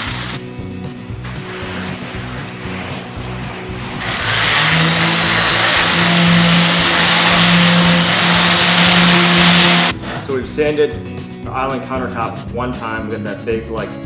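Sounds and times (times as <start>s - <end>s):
orbital sander on concrete: 1.3s - 10.0s.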